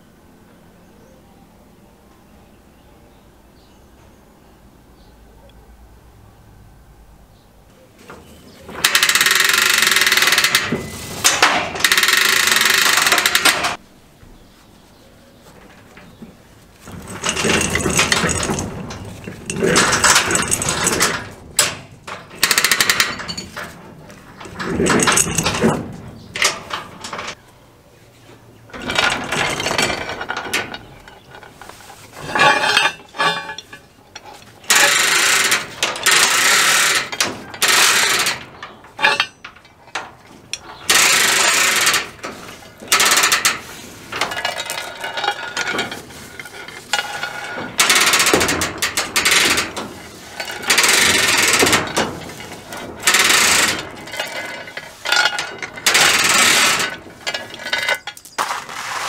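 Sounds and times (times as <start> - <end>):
chain links rattling through hoist: 8.7 - 13.8, 16.8 - 27.4, 28.7 - 59.0
ratchet pawl clicking: 8.8 - 10.7, 11.8 - 13.7.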